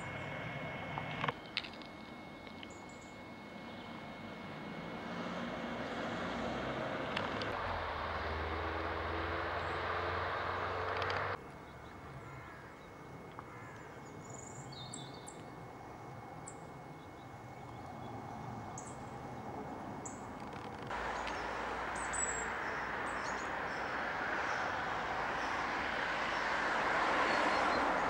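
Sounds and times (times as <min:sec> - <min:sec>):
road traffic passing: 0:00.0 - 0:12.3, 0:17.9 - 0:28.0
bird chirps: 0:02.1 - 0:05.0, 0:21.0 - 0:28.0.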